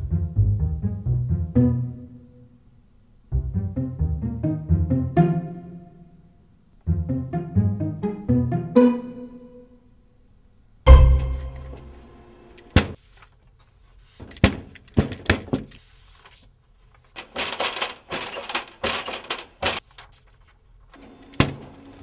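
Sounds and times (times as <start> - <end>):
photocopier clattering: 14.2 - 15.8, 17.1 - 20.1
photocopier clunks and clicks: 17.2 - 19.8, 21.0 - 22.0.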